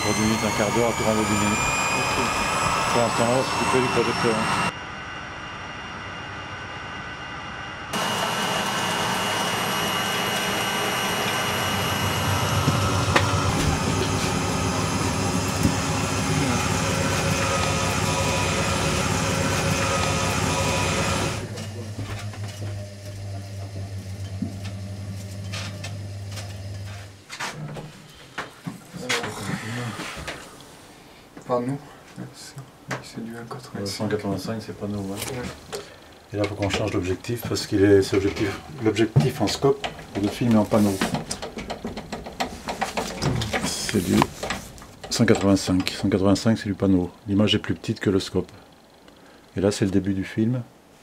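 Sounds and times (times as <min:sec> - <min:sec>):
film rewinding motor whirr: 0:00.0 - 0:04.7, 0:07.9 - 0:26.9
faint high whine: 0:00.0 - 0:23.2
film reel clicks and knocks: 0:41.2 - 0:43.6.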